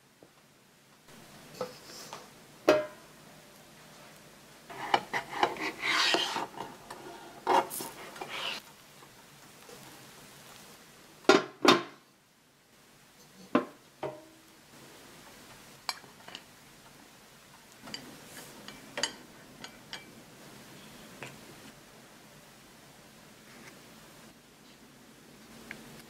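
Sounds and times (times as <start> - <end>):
stick scraping inside metal ring: 4.7 - 6.7, 7.4 - 8.6.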